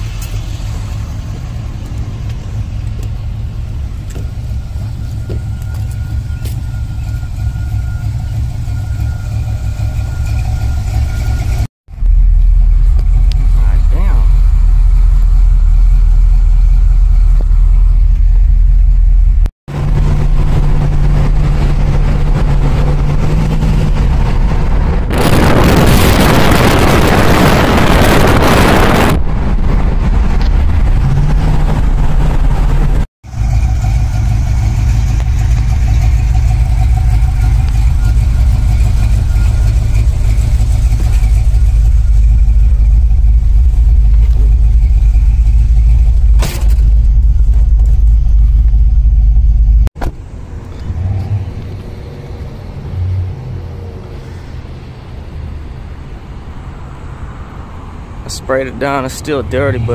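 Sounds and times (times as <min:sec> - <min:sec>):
vehicle engine and road rumble: 0:00.0 - 0:59.9
loud rushing noise: 0:19.7 - 0:33.5.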